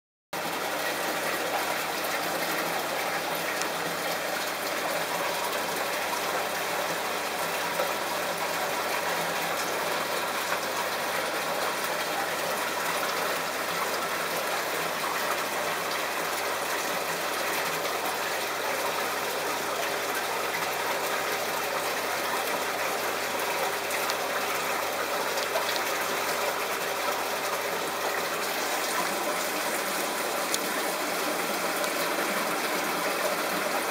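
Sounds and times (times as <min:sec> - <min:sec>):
aquarium filter water rushing: 0:00.4 - 0:33.9.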